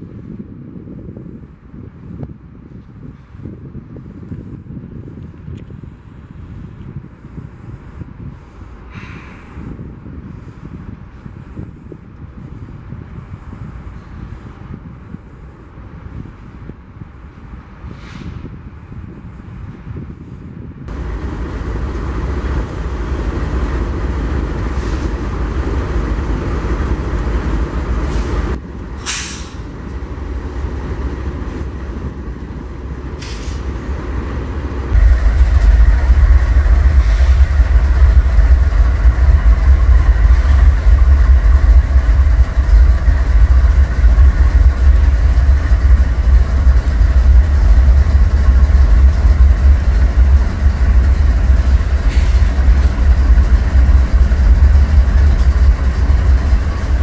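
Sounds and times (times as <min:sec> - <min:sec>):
diesel locomotives rumbling past: 0:06.0 - 0:57.0
wheels running on rails: 0:18.8 - 0:57.0
air hiss: 0:28.1 - 0:29.7.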